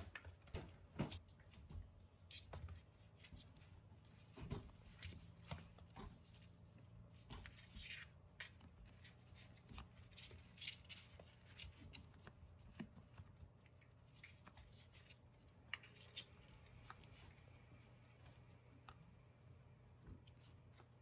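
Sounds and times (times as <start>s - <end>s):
low room hum: 0.0s - 21.0s
paws scratching on cardboard: 1.1s - 17.5s.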